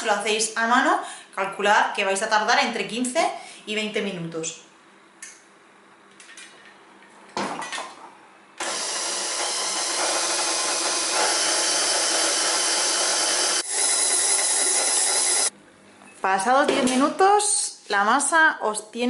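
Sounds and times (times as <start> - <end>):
stand mixer motor whining: 8.6 - 15.5.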